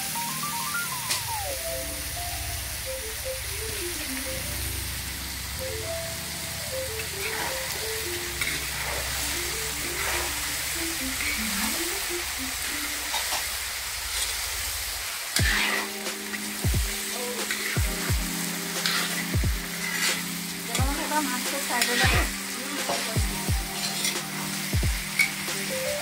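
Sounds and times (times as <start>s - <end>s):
background music: 0.0s - 13.2s, 15.4s - 26.0s
vegetables sizzling in a wok: 0.0s - 26.0s
ladle stirring in a wok: 7.1s - 11.6s, 15.3s - 21.1s, 21.7s - 25.5s.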